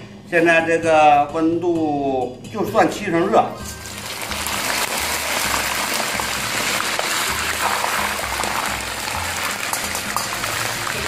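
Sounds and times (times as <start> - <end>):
oil sizzling and crackling: 3.6 - 11.0.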